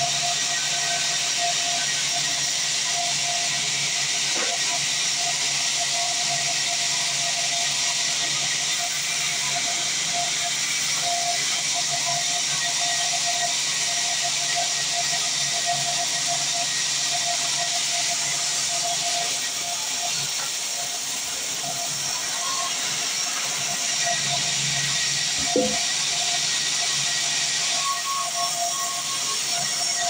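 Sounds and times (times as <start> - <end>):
bandsaw running: 3.5 - 5.6, 13.3 - 30.0.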